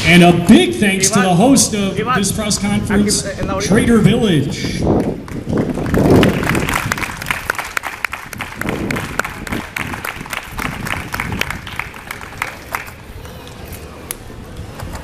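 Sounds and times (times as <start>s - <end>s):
scattered hand clapping: 4.9s - 13.0s.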